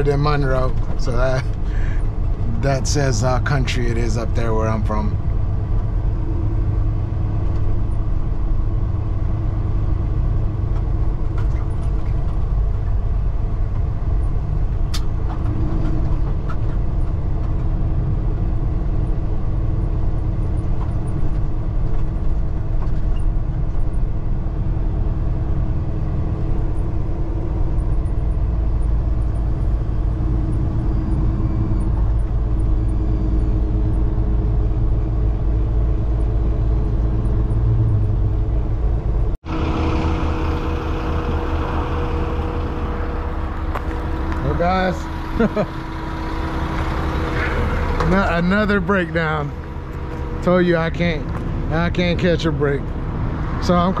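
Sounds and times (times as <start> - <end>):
truck engine and road noise: 0.0 - 54.0
sharp click: 14.9 - 15.4.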